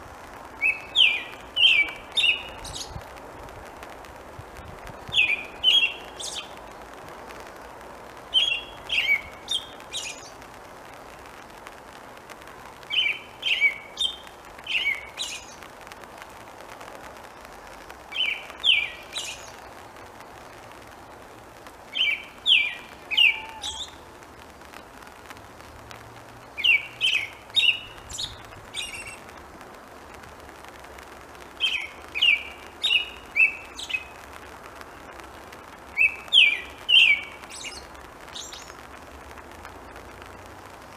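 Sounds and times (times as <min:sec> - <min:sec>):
rain hissing: 0:00.0 - 0:40.9
bird singing whistled notes: 0:00.6 - 0:03.0, 0:05.1 - 0:06.6, 0:08.3 - 0:10.3, 0:12.9 - 0:15.6, 0:18.1 - 0:19.7, 0:21.9 - 0:24.0, 0:26.6 - 0:29.2, 0:31.6 - 0:34.1, 0:36.0 - 0:38.8.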